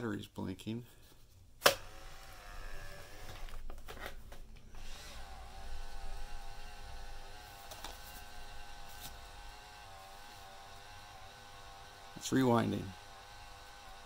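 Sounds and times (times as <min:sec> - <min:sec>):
camera motor rewinding film: 0:01.7 - 0:03.6, 0:04.8 - 0:14.0.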